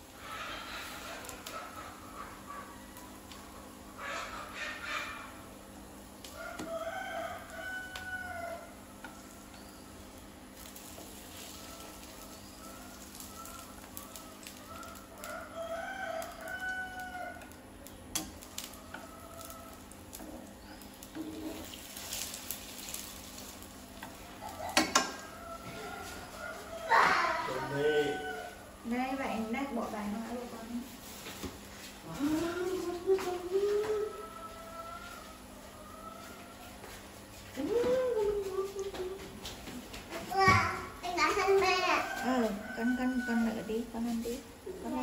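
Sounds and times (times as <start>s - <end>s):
batter frying in oil: 0.0s - 4.0s, 5.4s - 27.5s
rooster crowing: 6.3s - 8.9s, 11.4s - 17.6s, 18.6s - 20.0s, 24.2s - 30.0s, 33.6s - 37.0s, 41.5s - 44.0s.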